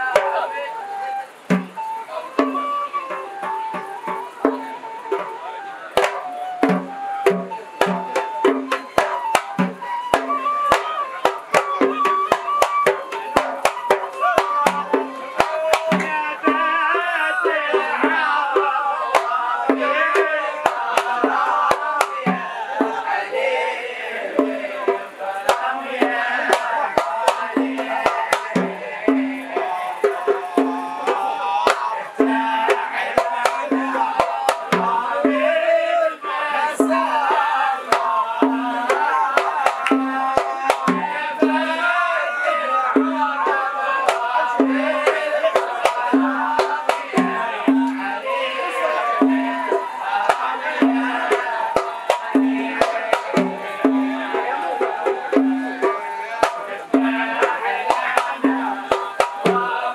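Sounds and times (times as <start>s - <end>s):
chorus of men singing: 0.0s - 59.9s
hand drums beating fast rhythm: 0.0s - 59.9s.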